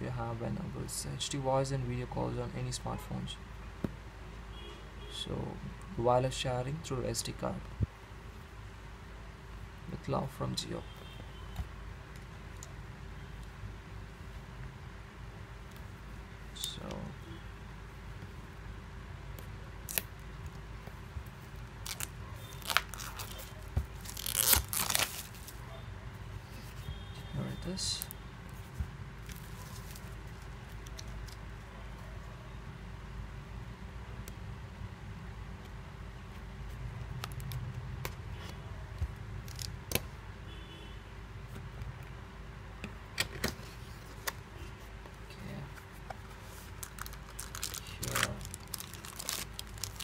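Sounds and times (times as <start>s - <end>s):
plastic wrap crinkling: 21.8s - 25.6s, 46.5s - 50.0s.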